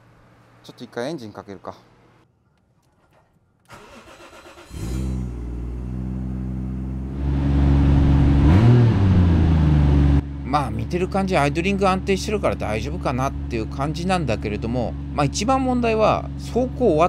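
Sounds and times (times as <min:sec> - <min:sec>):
engine starter cranking: 0:03.0 - 0:05.3
car engine idling: 0:09.2 - 0:17.0.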